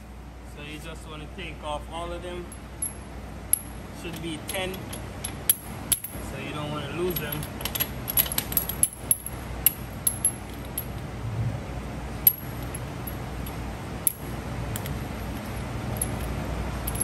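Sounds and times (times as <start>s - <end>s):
small metal parts clinking: 7.0s - 11.0s, 12.2s - 17.0s
low hum: 7.2s - 17.0s.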